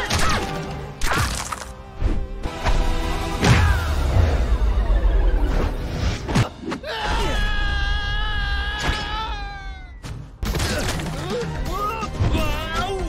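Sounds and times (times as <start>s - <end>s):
action soundtrack music: 0.0s - 13.0s.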